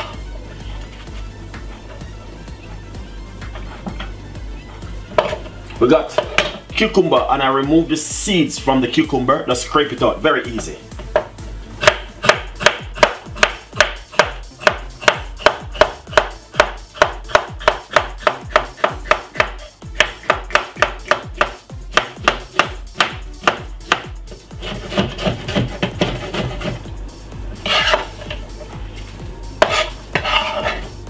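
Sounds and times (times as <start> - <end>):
knife slicing cucumber on board: 11.8 - 26.8, 27.6 - 28.4, 29.6 - 30.9.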